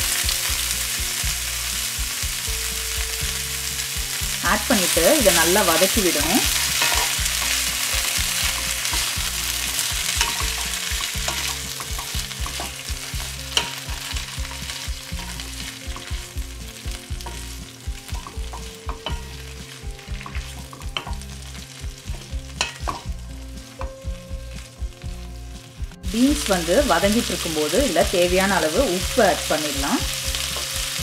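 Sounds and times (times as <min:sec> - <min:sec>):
beans sizzling in hot oil: 0:00.0 - 0:31.0
wooden spatula knocking and scraping pan: 0:04.8 - 0:24.8.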